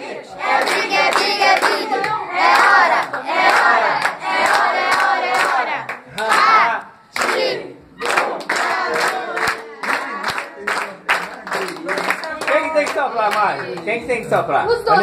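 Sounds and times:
group singing and chanting: 0.0s - 10.4s
rhythmic hand clapping: 0.5s - 14.0s.

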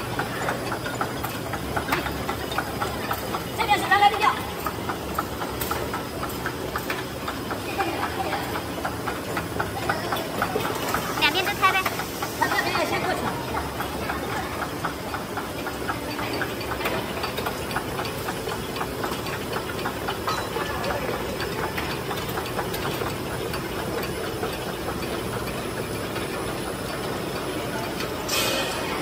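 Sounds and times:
pressing machine clattering: 0.0s - 29.0s
machine hiss: 10.6s - 14.7s.

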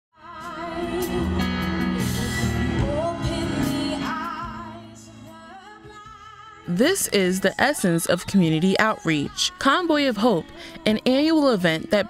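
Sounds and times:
live band with women singing: 0.2s - 6.6s.

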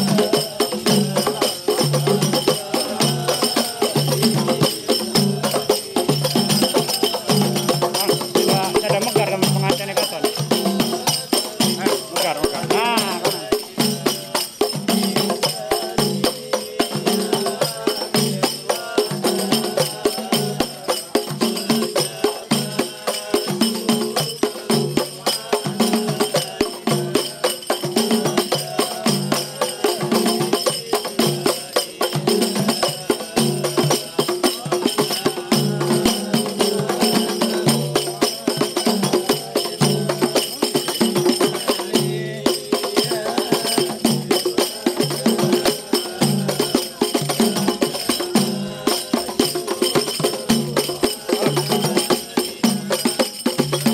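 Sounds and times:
frame drums playing: 0.0s - 53.9s
bright jingling: 0.8s - 15.2s.

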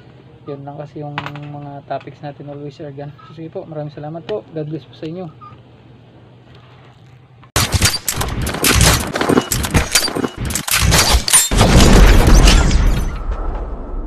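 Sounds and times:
rapid gunshots: 7.6s - 13.0s
heavy boom: 11.5s - 14.0s.

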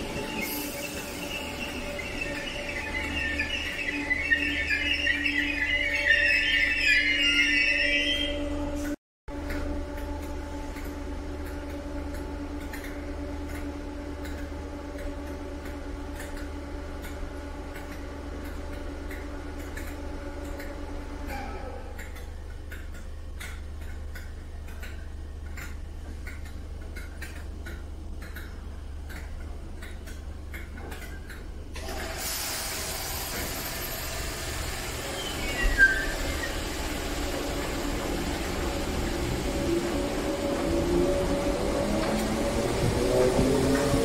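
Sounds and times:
train rushing noise: 0.0s - 9.0s, 31.8s - 44.0s
rising whine: 0.0s - 21.3s, 33.3s - 44.0s
electric train humming: 0.0s - 44.0s
short falling squeal: 0.3s - 8.8s, 35.0s - 36.7s.

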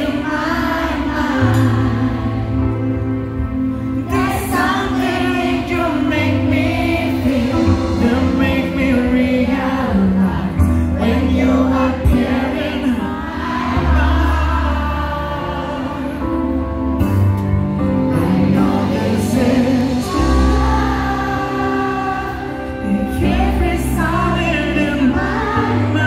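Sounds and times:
band with bass and drums: 1.4s - 12.5s, 14.1s - 26.0s
man singing into a microphone: 4.5s - 13.1s, 18.0s - 26.0s.

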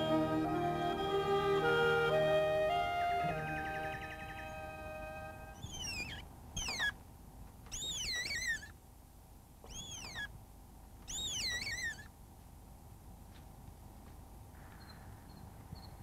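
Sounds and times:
deer fawn bleating: 3.2s - 6.2s.

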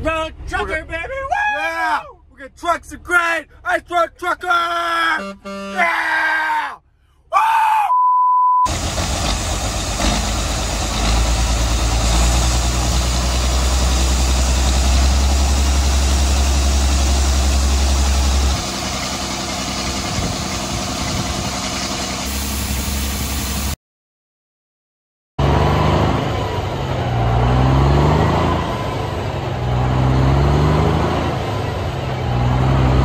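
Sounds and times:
test-tone beep: 7.9s - 8.7s
tractor engine running: 8.7s - 23.8s.

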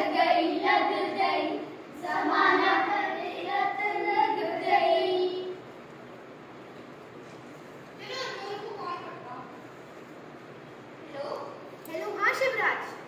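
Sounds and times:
children singing: 0.0s - 5.6s.

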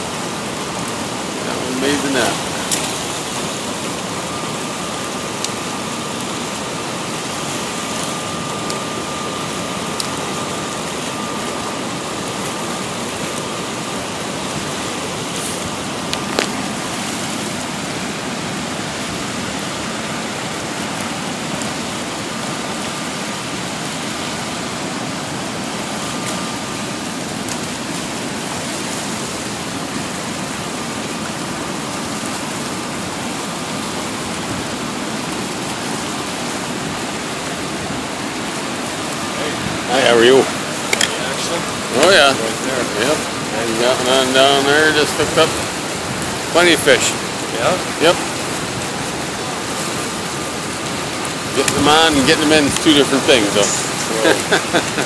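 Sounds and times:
river rapids rushing: 0.0s - 55.0s.

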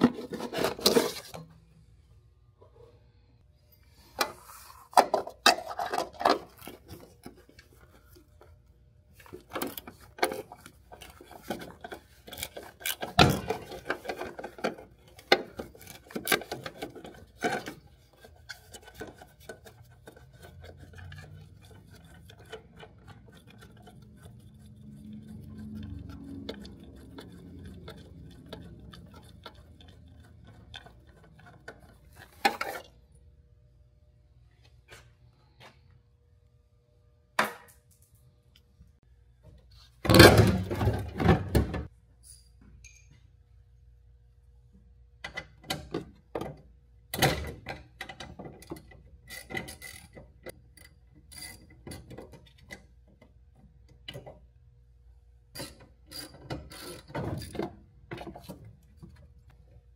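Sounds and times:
rubbing and scraping: 0.0s - 1.4s, 9.3s - 32.9s
tools and parts knocking and rattling: 5.0s - 7.8s, 9.2s - 32.9s, 40.0s - 42.7s, 45.2s - 54.5s, 55.6s - 59.3s.

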